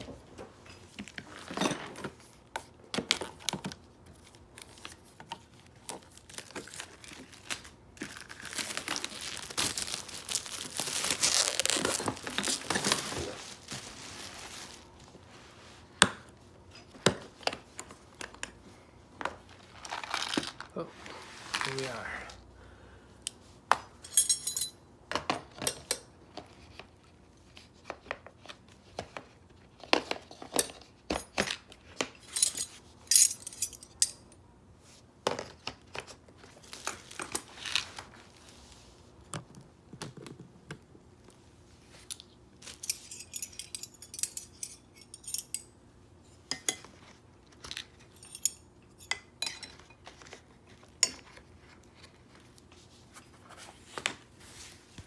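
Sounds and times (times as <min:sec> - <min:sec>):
metal wrenches clinking: 0:24.0 - 0:24.8, 0:42.7 - 0:45.6.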